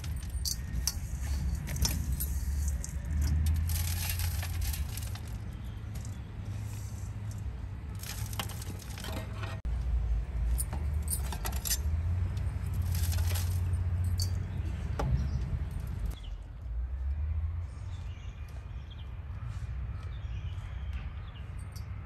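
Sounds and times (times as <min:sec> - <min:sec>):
metallic clinks on steel tray: 0:00.0 - 0:03.0.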